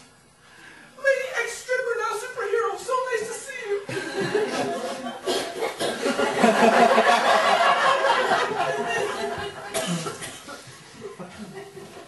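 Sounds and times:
audience laughing: 3.9s - 12.0s.

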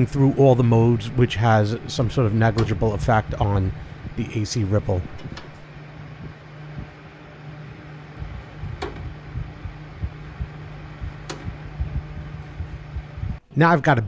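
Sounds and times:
cooling fan running: 0.0s - 13.5s
transformer hum: 0.0s - 13.5s
sharp clicks: 11.0s - 12.2s.

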